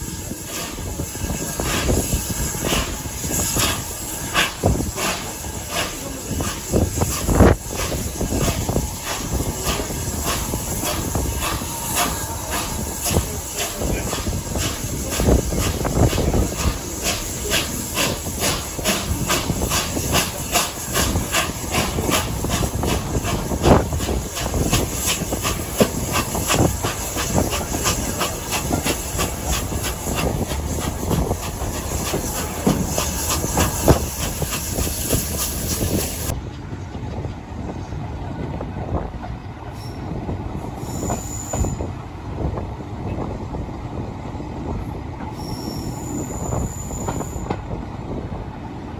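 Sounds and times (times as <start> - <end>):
steam locomotive exhaust beats: 0.0 - 48.9
brief squeal: 39.7 - 40.1, 40.8 - 41.9, 45.2 - 47.6.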